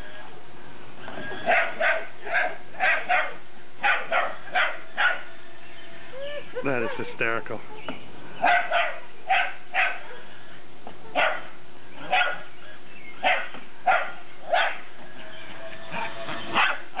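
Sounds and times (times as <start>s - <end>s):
dog barking: 1.4s - 5.3s, 8.4s - 10.2s, 11.1s - 12.5s, 13.2s - 14.9s, 16.6s - 17.0s.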